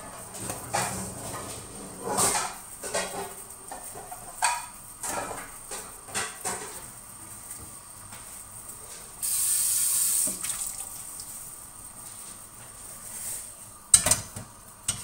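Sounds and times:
pots and utensils clattering: 0.0s - 6.9s
rushing hiss: 9.2s - 10.8s.

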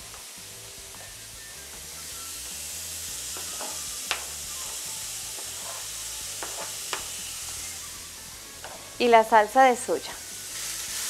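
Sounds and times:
vegetables sizzling in oil: 0.0s - 11.0s
knife scraping cutting board: 5.5s - 5.9s.

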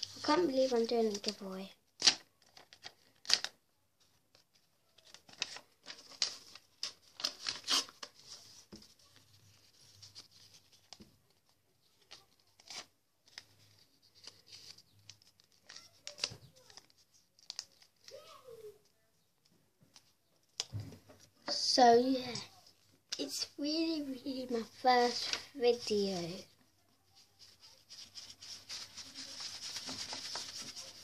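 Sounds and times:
paper being torn: 5.3s - 8.1s, 27.4s - 31.0s.

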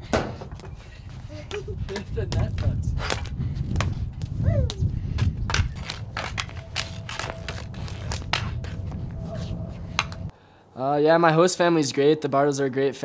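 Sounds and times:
low steady rumble: 4.1s - 10.3s
hockey sticks clacking on ball: 5.5s - 8.8s.

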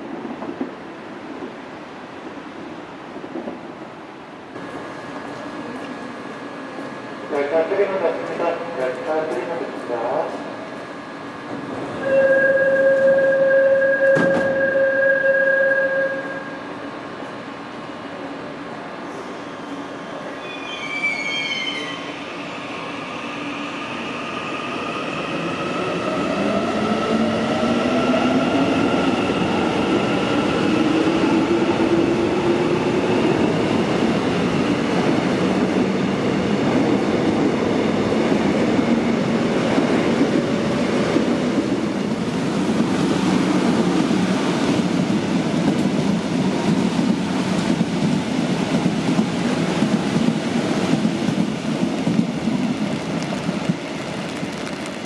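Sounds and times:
subway train whine: 0.0s - 55.0s
train cars running: 25.4s - 55.0s.

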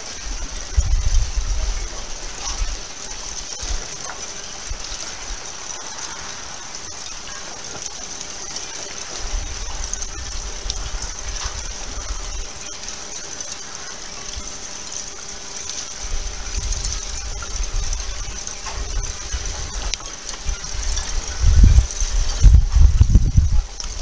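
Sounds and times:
ice crystals tinkling in water: 0.0s - 24.0s
low rumble: 14.2s - 24.0s.

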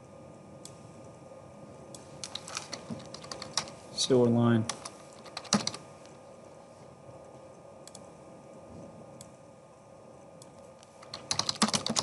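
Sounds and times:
faint steady hum: 0.0s - 12.0s
computer mouse clicks: 2.2s - 3.8s, 4.7s - 5.8s, 7.8s - 8.1s
keyboard typing: 2.2s - 3.8s, 4.7s - 5.8s, 11.0s - 12.0s.

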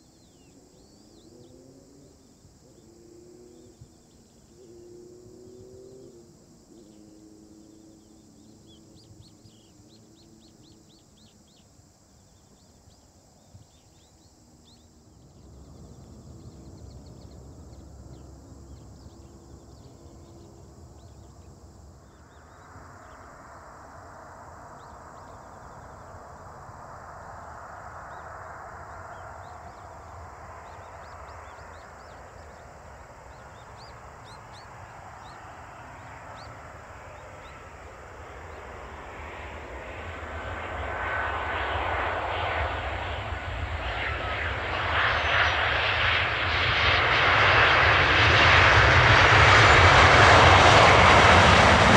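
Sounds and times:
jet engine noise: 6.2s - 51.9s.

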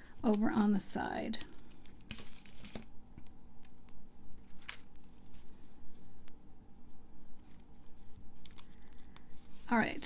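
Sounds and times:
paper rustling: 1.5s - 2.9s.

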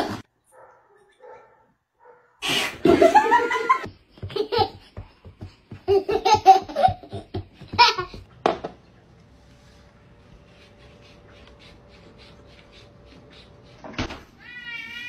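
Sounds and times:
hearty laughter: 2.8s - 4.8s.

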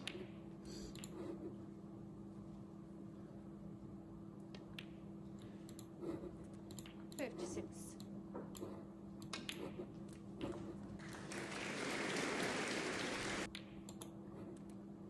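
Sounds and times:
crowd applauding: 11.0s - 13.5s.

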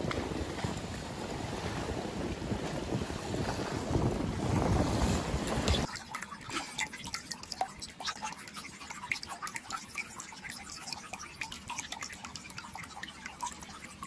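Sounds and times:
water trickling and dripping: 5.5s - 14.0s.

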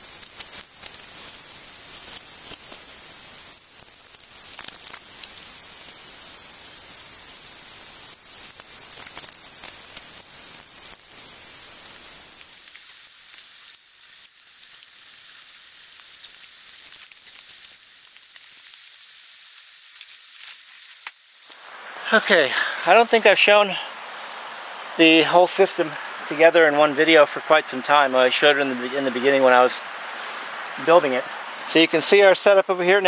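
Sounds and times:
steady outdoor hiss: 0.0s - 33.0s.

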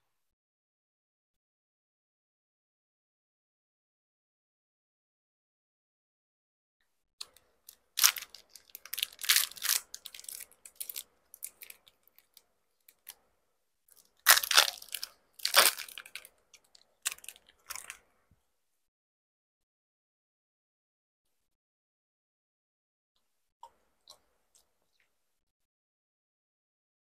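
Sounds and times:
wrapper handling: 8.0s - 12.4s, 14.2s - 18.0s
close-miked chewing: 14.0s - 18.0s.

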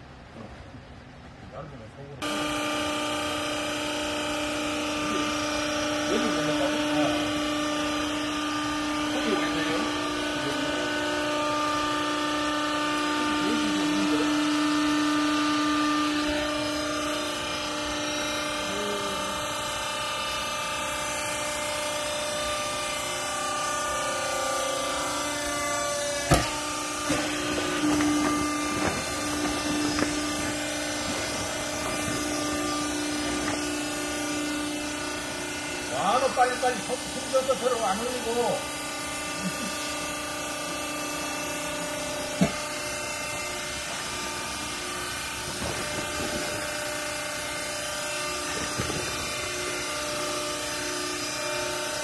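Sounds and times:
hydraulic baler motor humming: 2.2s - 52.0s
sharp knock: 26.3s - 27.2s.

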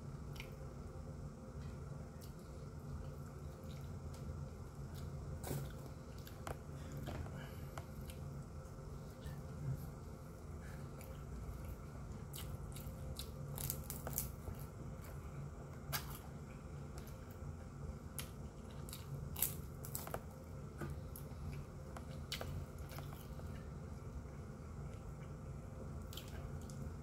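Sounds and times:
steady low hum: 0.0s - 27.0s
chewing: 10.8s - 15.3s, 21.1s - 23.7s.

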